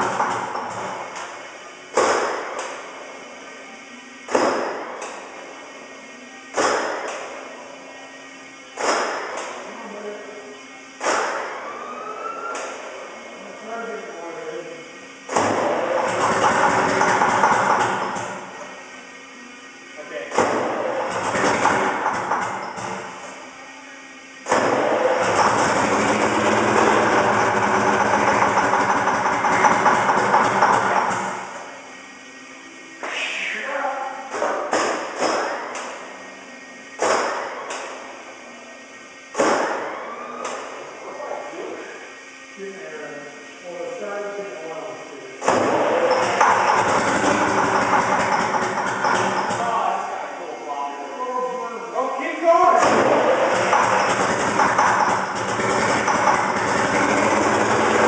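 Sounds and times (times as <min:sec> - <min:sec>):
diesel engine surging on start: 0:00.0 - 0:03.1, 0:14.6 - 0:18.8, 0:20.3 - 0:23.4, 0:24.4 - 0:31.8, 0:45.4 - 0:49.9, 0:52.6 - 0:58.0
diesel engine starting and running: 0:00.0 - 0:58.0.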